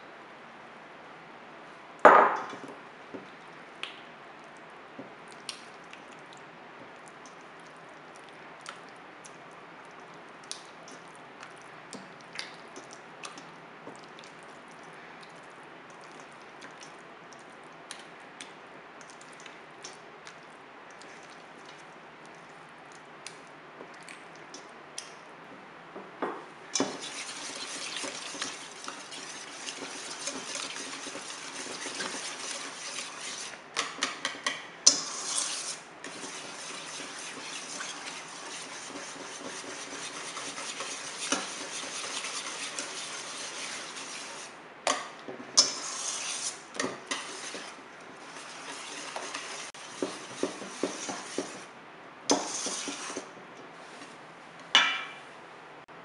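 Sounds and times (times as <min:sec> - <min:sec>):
whisk beating batter in bowl: 0:26.8 - 0:44.6, 0:45.6 - 0:51.7, 0:52.3 - 0:53.4
whisk clinking against metal bowl: 0:26.8 - 0:45.0, 0:45.6 - 0:51.7, 0:52.3 - 0:53.2.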